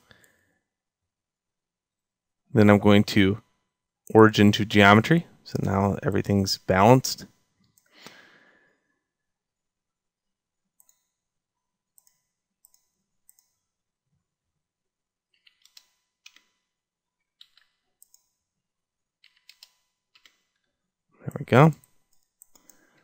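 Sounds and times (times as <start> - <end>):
mouse and keyboard clicks: 15.4 - 16.5, 17.4 - 18.3, 19.2 - 20.4.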